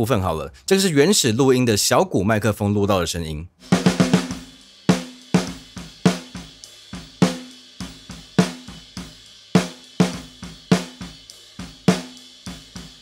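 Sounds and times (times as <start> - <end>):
bass drum: 3.6 - 13.0
cymbals: 3.6 - 13.0
hi-hat: 4.4 - 13.0.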